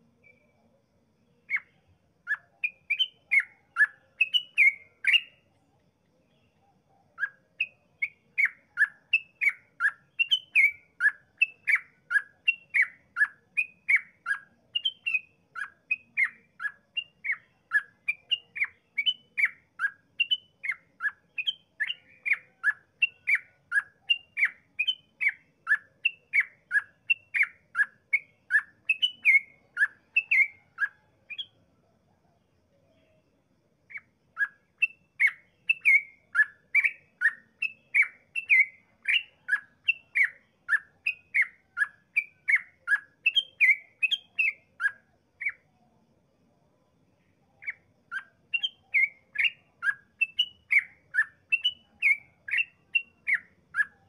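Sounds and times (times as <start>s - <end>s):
bird chirping: 0.0s - 54.0s.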